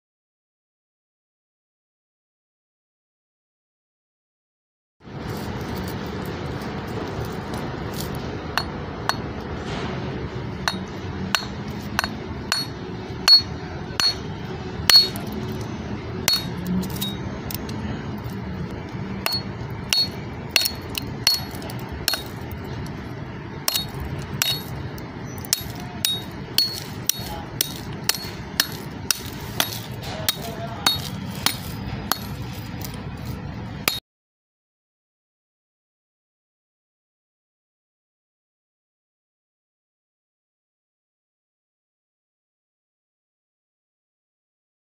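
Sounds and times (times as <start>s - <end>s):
metal tool clinking on metal: 10.7s - 14.2s, 14.9s - 15.6s, 16.3s - 18.3s, 19.2s - 22.8s, 23.7s - 34.0s.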